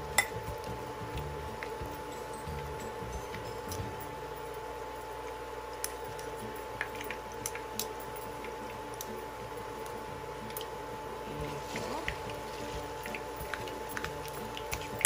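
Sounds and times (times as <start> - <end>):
spoon squishing meat mixture: 9.8 - 15.0.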